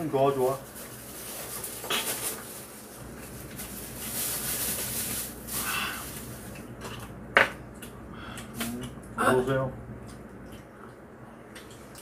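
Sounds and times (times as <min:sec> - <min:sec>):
chewing mouth noises: 0:10.0 - 0:12.0.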